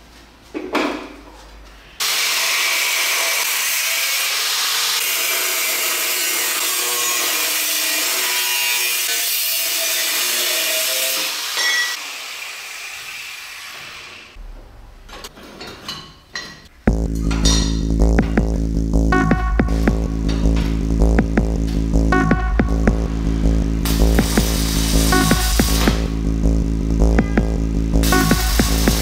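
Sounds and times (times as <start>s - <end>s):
angle grinder cutting steel: 2.0s - 14.3s.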